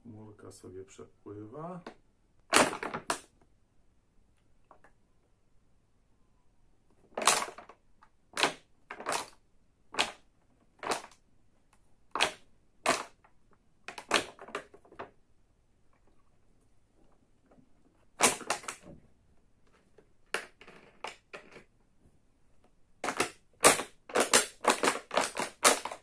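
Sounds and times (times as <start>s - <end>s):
plastic bottle crackling and popping: 1.8s - 3.4s, 6.9s - 11.2s, 12.1s - 15.2s, 17.0s - 21.7s, 23.0s - 26.0s.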